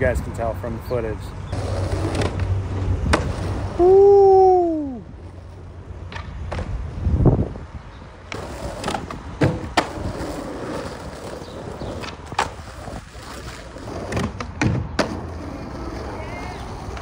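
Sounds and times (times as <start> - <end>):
skateboard wheels rolling on asphalt: 0.0 - 17.0
skateboard clacks: 8.3 - 17.0.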